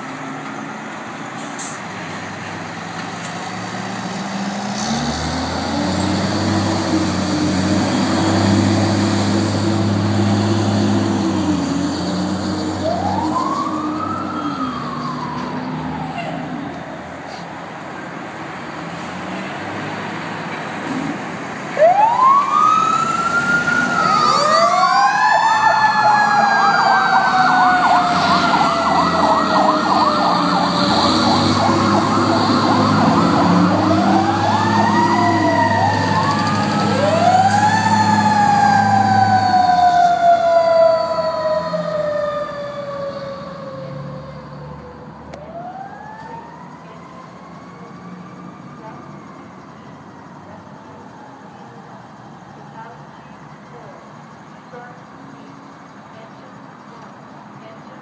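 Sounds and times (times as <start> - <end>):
heavy truck engines running: 0.0 - 58.0
electronic sirens wailing: 4.0 - 17.0, 21.8 - 53.7
fast-warbling siren tone: 12.8 - 16.0, 21.8 - 43.9.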